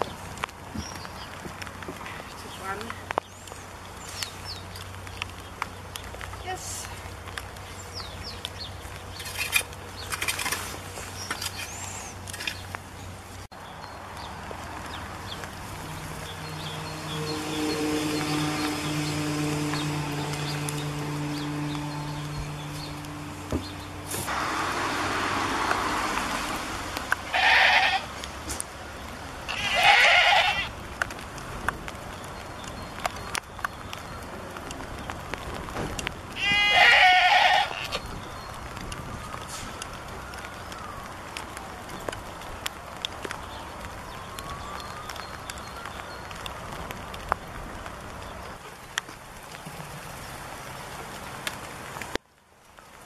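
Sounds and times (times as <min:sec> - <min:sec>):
small birds chirping: 0:00.0 - 0:24.3, 0:31.9 - 0:35.4
goat bleating: 0:27.3 - 0:28.1, 0:29.5 - 0:30.7, 0:36.4 - 0:38.0.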